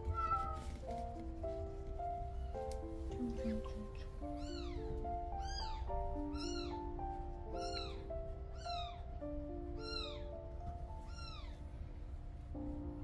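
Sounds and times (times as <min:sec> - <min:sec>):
kitten mewing: 0:00.0 - 0:00.6
slow background music: 0:00.0 - 0:13.0.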